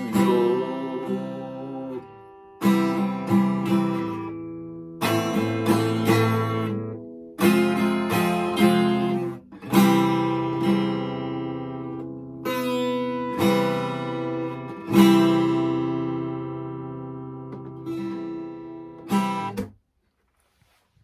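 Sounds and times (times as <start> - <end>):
acoustic guitar strumming: 0.0 - 19.8.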